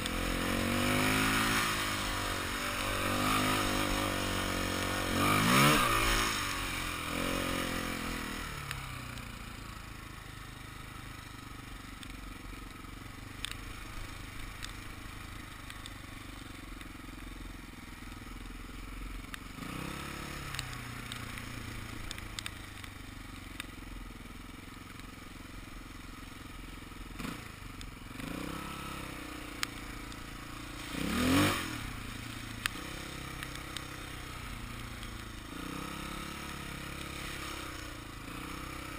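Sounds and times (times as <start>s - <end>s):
dirt bike engine revving: 0.0s - 8.7s, 19.6s - 22.1s, 27.2s - 27.5s, 28.1s - 38.9s
light clicks: 15.6s - 16.0s, 20.4s - 23.0s.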